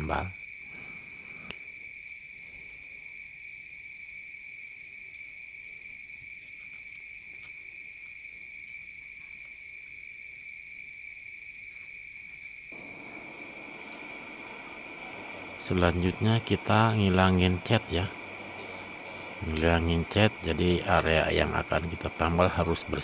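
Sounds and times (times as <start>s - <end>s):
cricket trilling: 0.0s - 23.0s.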